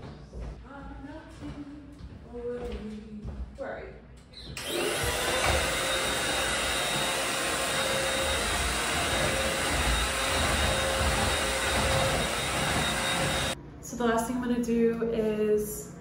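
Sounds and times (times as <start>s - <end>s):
stick vacuum cleaner running: 4.6s - 13.6s.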